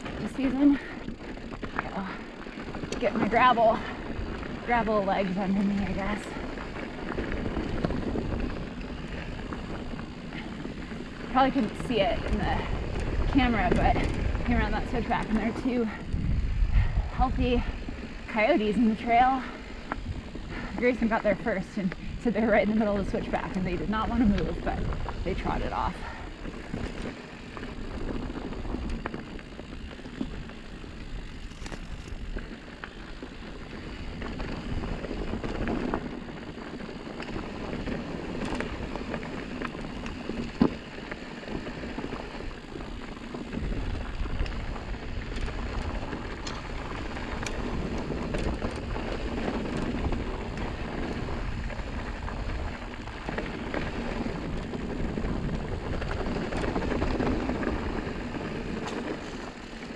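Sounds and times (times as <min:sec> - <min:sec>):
bike rattles and clicks: 0:00.0 - 0:59.9
bike tyre rumble on gravel: 0:00.0 - 0:59.9
wind on microphone: 0:11.3 - 0:27.0.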